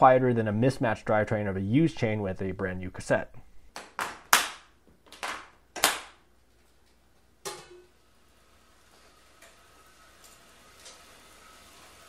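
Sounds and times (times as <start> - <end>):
bike trainer whirring: 7.9 - 12.0.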